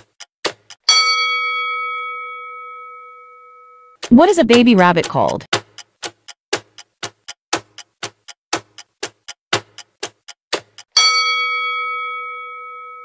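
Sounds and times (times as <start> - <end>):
clock ticking: 0.0 - 1.2, 4.0 - 11.4
bell-like ding: 0.9 - 4.0, 11.0 - 13.0.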